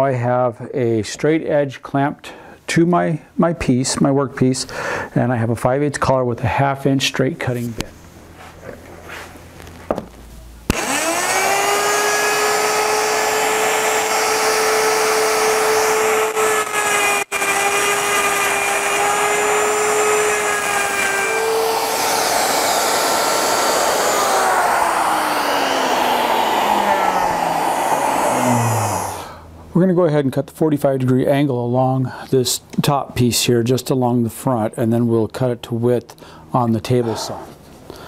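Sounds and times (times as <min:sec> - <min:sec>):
router whining while cutting wood: 0:10.7 - 0:29.4.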